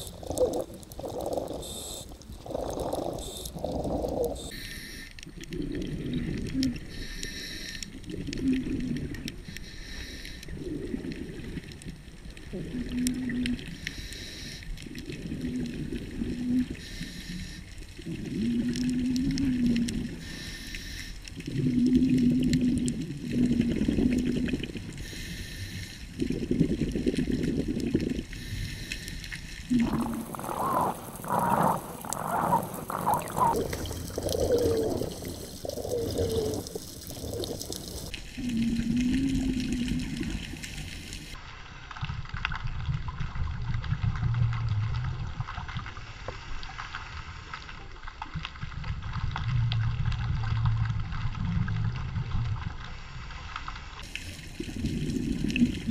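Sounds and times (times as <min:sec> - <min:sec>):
exhaled bubbles: 0:00.0 - 0:04.6, 0:05.2 - 0:41.4, 0:48.3 - 0:52.9, 0:54.0 - 0:55.9
scuba regulator breathing: 0:00.0 - 0:05.4, 0:06.7 - 0:08.6, 0:09.4 - 0:11.1, 0:13.7 - 0:15.1, 0:16.6 - 0:23.9, 0:24.8 - 0:41.4.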